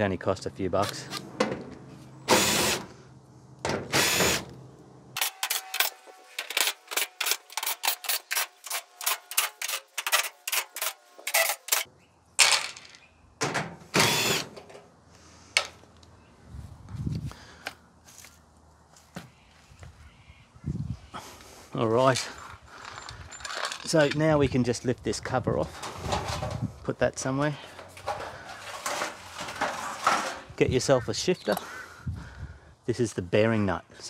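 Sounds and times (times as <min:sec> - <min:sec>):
power drill running in bursts: 0:02.3 - 0:02.8, 0:03.9 - 0:04.4, 0:14.0 - 0:14.5
sharp clicks and clinks: 0:22.2 - 0:24.3.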